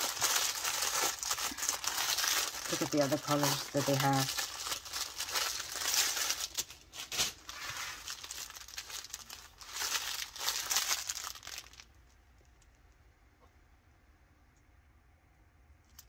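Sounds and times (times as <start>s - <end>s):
plastic baggies crinkling: 0.0s - 12.1s.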